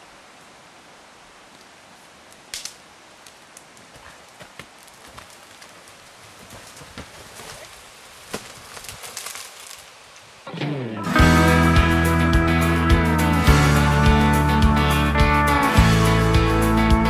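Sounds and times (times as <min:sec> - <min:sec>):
steady hiss: 0:00.0 - 0:10.6
twigs cracking underfoot: 0:02.3 - 0:10.4
footsteps through undergrowth: 0:03.4 - 0:10.4.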